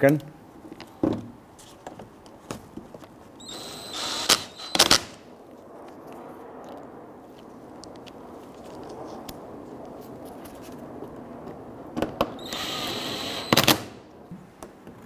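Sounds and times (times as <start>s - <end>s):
cordless driver whining: 3.4s - 5.1s, 12.4s - 13.8s.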